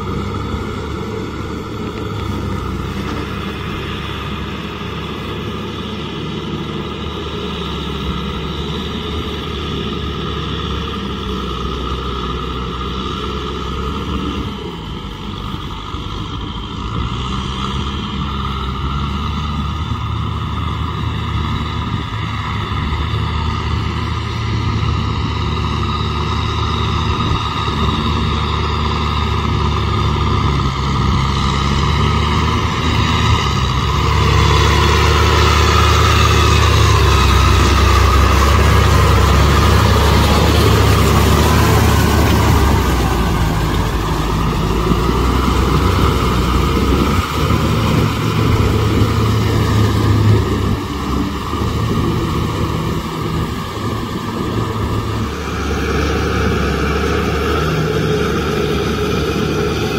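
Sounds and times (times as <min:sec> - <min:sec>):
tractor diesel engine under load: 0:00.0 - 0:59.9.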